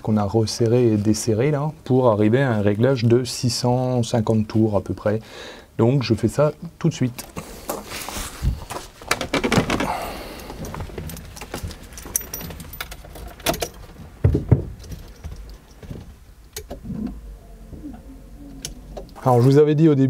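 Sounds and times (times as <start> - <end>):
clicks and knocks: 9.0 - 16.8
keys jangling: 10.5 - 13.8.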